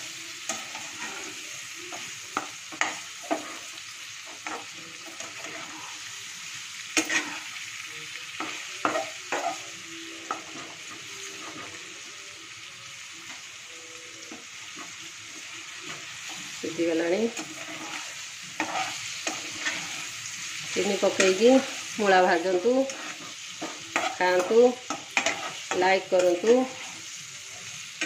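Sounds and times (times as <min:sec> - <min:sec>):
slices sizzling in oil: 0:00.0 - 0:28.0.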